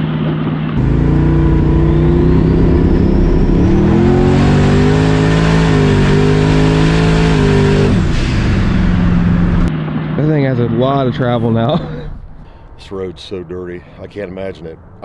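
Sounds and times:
truck engine at full throttle: 0.8s - 9.7s.

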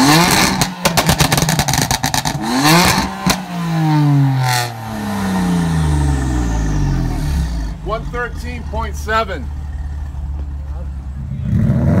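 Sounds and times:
exhaust crackles and pops: 0.0s - 3.6s
exhaust bang: 0.0s - 10.6s
car engine revving: 0.0s - 12.0s.

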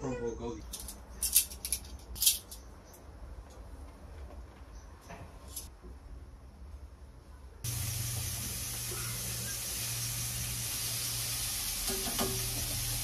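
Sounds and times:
food sizzling on a grill: 7.7s - 13.0s.

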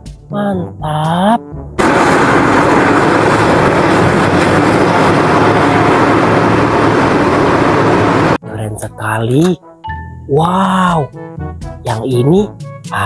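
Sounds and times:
excavator diesel engine rumbling: 1.8s - 8.4s.

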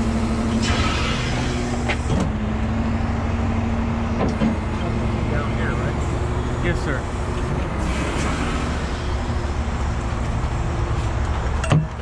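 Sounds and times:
truck engine running: 0.0s - 12.0s.

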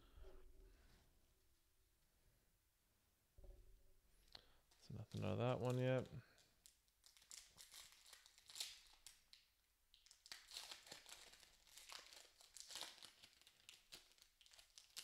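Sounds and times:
wrapper crinkling and tearing: 4.7s - 15.0s.

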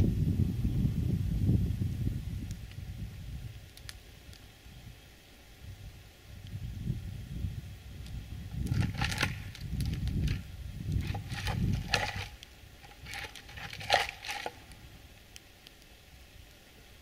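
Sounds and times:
dry branches cracking: 3.4s - 4.5s, 8.0s - 16.6s.

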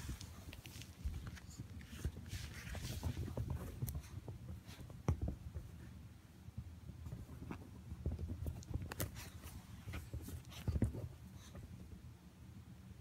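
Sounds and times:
animals scuffling on furniture: 0.0s - 6.0s
soft rustling: 0.0s - 12.1s
light thumps and taps: 3.0s - 5.8s.

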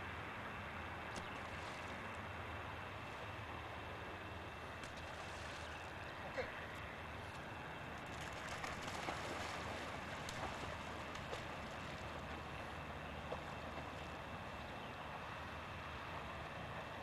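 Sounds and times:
wind: 0.0s - 17.0s
dog splashing in water: 8.1s - 12.4s.

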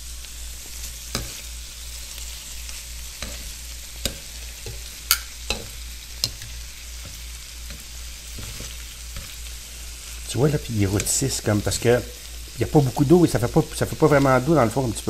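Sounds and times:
shrimp sizzling in a wok: 0.0s - 15.0s
tongs clicking against pan: 3.1s - 9.4s.

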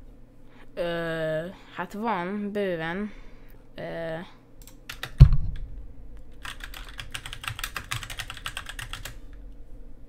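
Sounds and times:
keyboard typing clicks: 6.4s - 9.2s.

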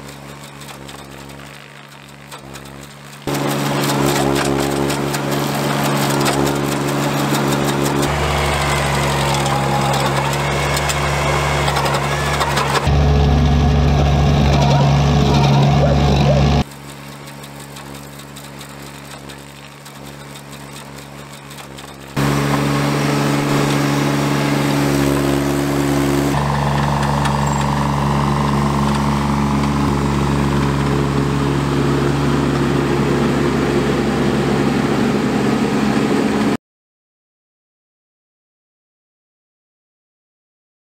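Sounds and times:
skidsteer engine running: 0.0s - 36.6s
high whine: 3.2s - 16.7s, 22.2s - 36.6s.

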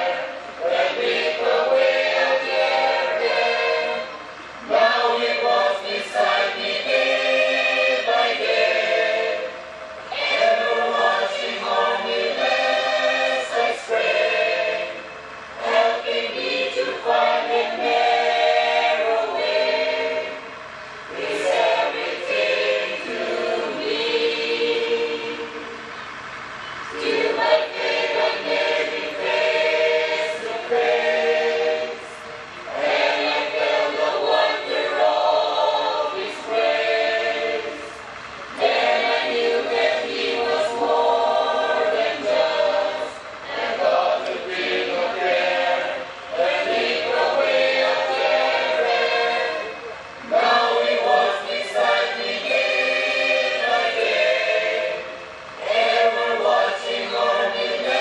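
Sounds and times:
women's choir singing: 0.0s - 58.0s.

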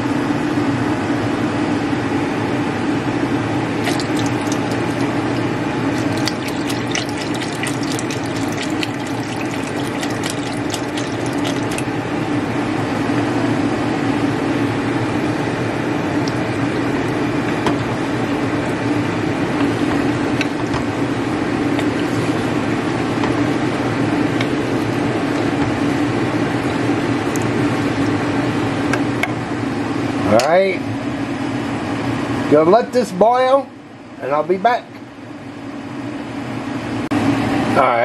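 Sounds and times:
steady hum: 1.6s - 32.3s
liquid pouring into a pot: 3.8s - 11.9s
wooden spoon stirring soup: 3.9s - 11.9s.

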